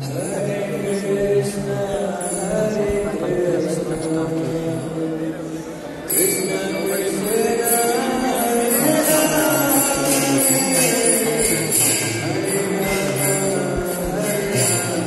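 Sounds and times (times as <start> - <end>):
hand cymbals ringing: 6.0 - 15.0
voices singing a devotional chant: 6.1 - 15.0.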